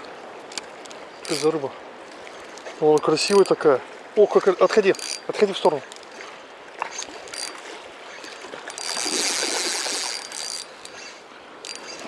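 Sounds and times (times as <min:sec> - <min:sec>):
river running over stones: 0:00.0 - 0:12.0
fishing reel whirring and clicking: 0:00.5 - 0:01.6, 0:02.4 - 0:03.6, 0:04.8 - 0:06.2, 0:06.8 - 0:12.0.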